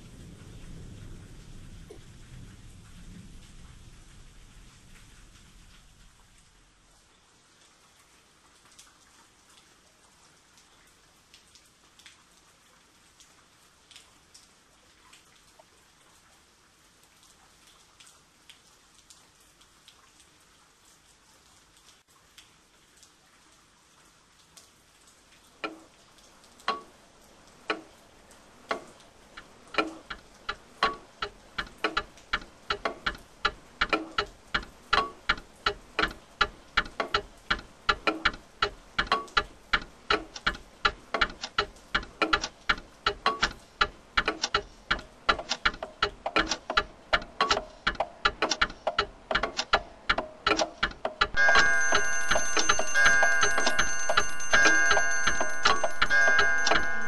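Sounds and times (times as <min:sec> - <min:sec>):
clock ticking: 0:25.6 - 0:25.9, 0:26.7 - 0:26.9, 0:27.7 - 0:27.9, 0:28.6 - 0:57.0
sustained chord of tones: 0:51.4 - 0:57.0.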